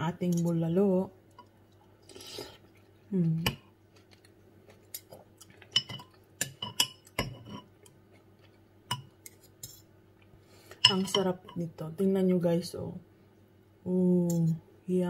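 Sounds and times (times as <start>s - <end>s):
cutlery clinking on ceramic: 5.7s - 7.8s, 10.8s - 11.5s.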